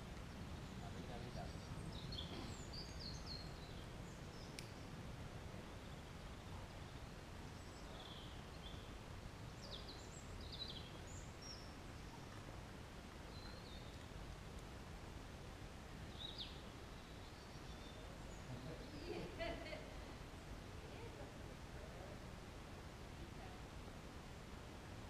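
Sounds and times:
low rumble of wind: 0.0 - 25.0
songbirds chirping: 0.0 - 25.0
faint click: 4.5 - 4.8.

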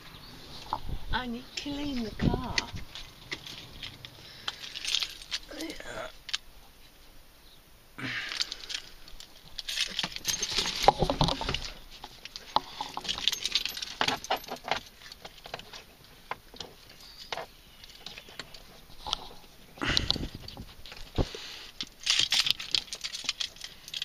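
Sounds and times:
car keys jangling: 2.9 - 6.4, 8.3 - 15.8, 21.8 - 24.0.

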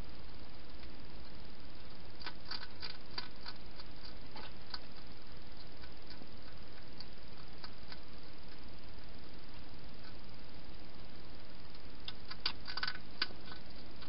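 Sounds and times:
steady hiss: 0.0 - 14.0
hedgehog chewing clicks: 2.2 - 8.6, 12.0 - 14.0.

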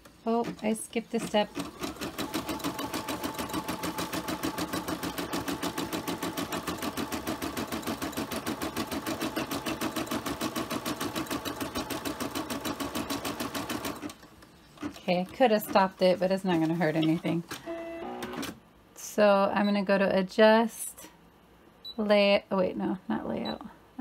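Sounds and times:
embroidery machine stitching: 0.4 - 18.6.

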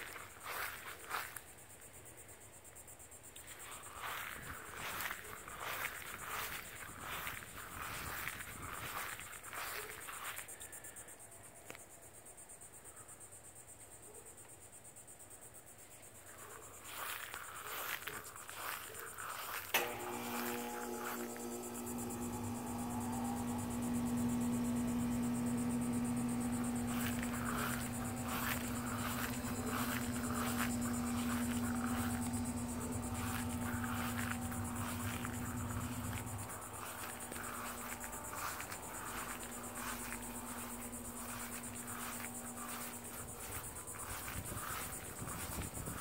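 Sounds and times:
insects chirping: 0.0 - 46.0
low mechanical hum: 3.3 - 10.5, 16.6 - 46.0.

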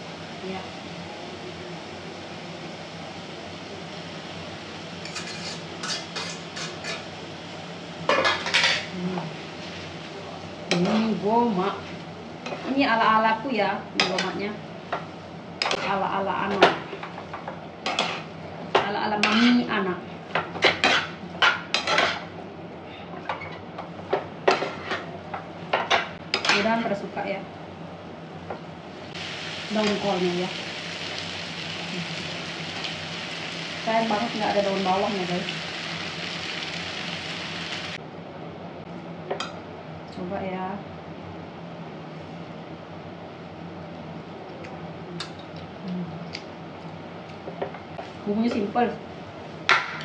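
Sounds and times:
tongs scraping a frying pan: 5.0 - 7.1.

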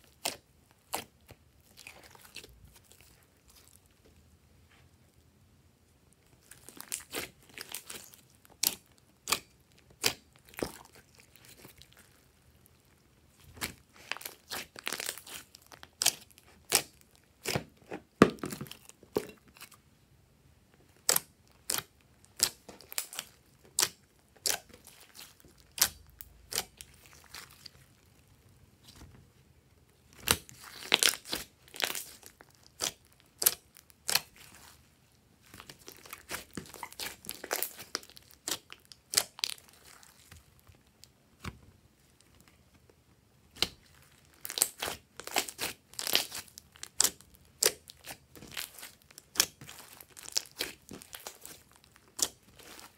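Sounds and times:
slime clicking and popping: 43.5 - 52.8.

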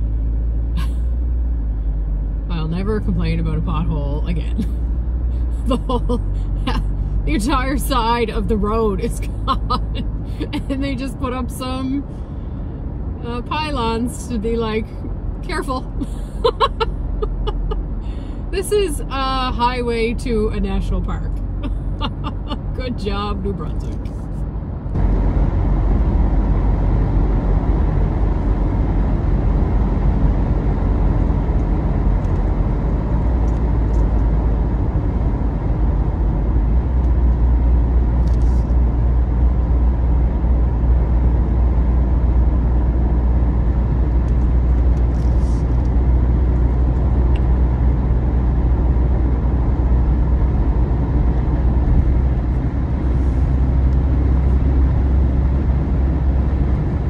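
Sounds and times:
road and engine noise in car cabin: 0.0 - 57.0.

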